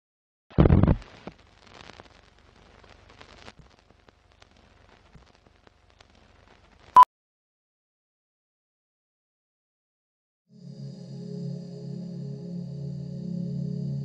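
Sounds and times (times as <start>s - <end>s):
film crackle and ticks: 1.0s - 7.0s.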